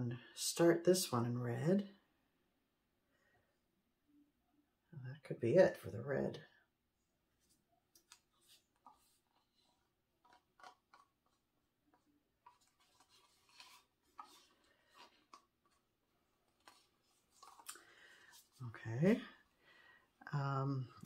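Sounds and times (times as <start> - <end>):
wooden stick scraping plastic cup: 8.0 - 15.8.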